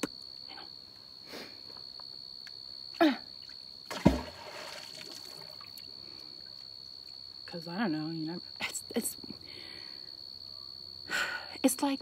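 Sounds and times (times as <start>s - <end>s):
magnet splashing into river: 3.9s - 5.8s.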